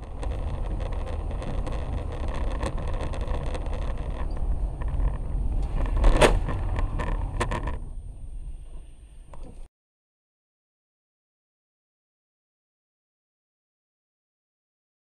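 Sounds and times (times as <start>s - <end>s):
car tyre and engine rumble: 0.0s - 9.7s.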